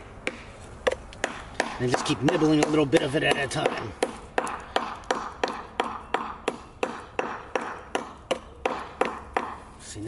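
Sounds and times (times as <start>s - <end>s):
hammer tapping stone: 0.3s - 9.6s.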